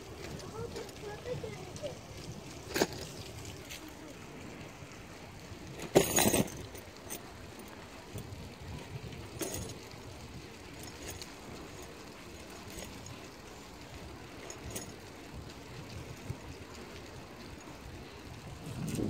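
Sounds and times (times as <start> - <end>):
bicycle tyres on wet asphalt: 0.0 - 19.0
bike clinks and rattles: 0.0 - 19.0
wind noise: 18.0 - 19.0.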